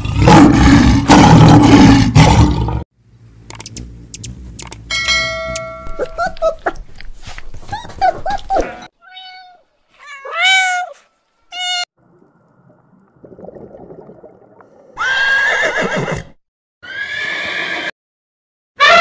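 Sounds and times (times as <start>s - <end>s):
horse whinnying: 15.0s - 17.9s.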